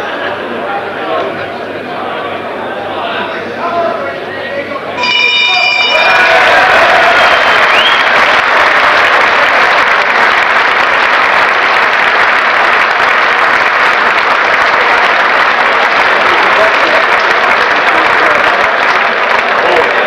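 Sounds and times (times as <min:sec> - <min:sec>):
audience applauding and cheering: 0:05.0 - 0:20.0
short rising whistle: 0:07.1 - 0:08.2.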